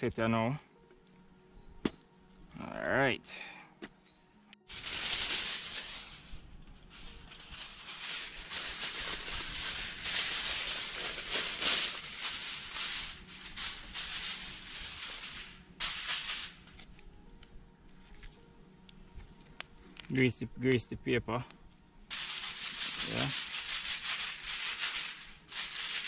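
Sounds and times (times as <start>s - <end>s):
aluminium foil crinkling: 4.6s - 20.2s, 22.0s - 26.0s.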